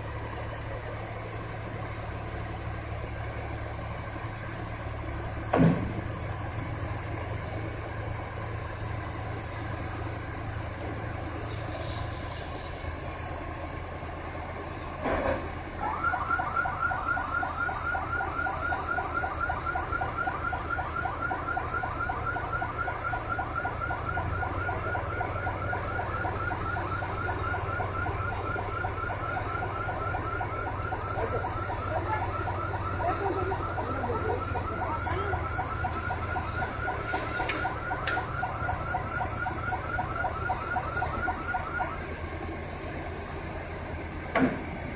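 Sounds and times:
heavy machinery engine hum: 0.0s - 44.9s
warbling warning alarm: 15.8s - 44.8s.

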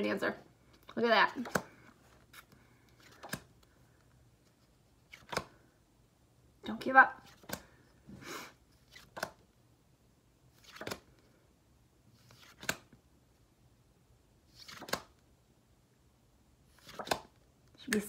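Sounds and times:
cards rustling and snapping: 1.4s - 5.7s, 7.2s - 7.8s, 8.8s - 9.4s, 10.6s - 11.3s, 12.2s - 13.0s, 14.5s - 15.2s, 16.7s - 18.0s.

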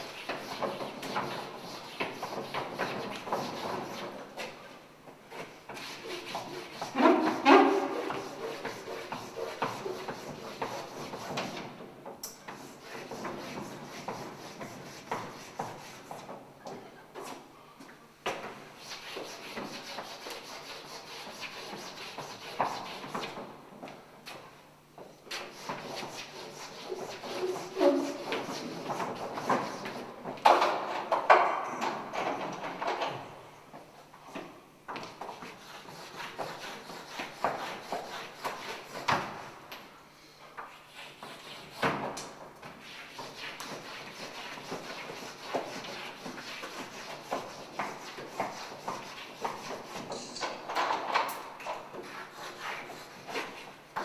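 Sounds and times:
chalk scraping on blackboard: 0.0s - 4.6s, 5.3s - 11.7s, 12.5s - 16.3s, 18.8s - 23.3s, 25.3s - 30.1s, 35.1s - 39.4s, 40.6s - 42.0s, 42.7s - 50.5s, 51.7s - 54.0s.

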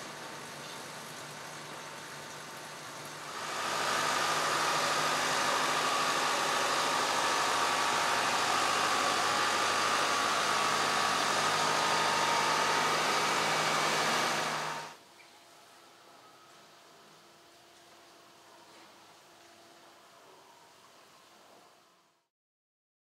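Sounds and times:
machine drone with whine: 3.2s - 15.0s.

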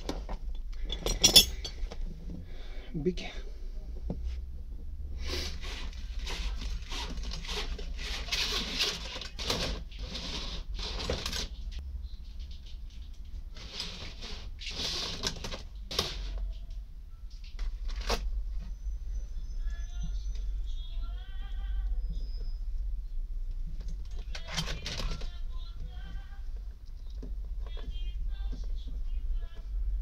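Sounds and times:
plastic tube rustling and scraping: 5.2s - 16.8s.

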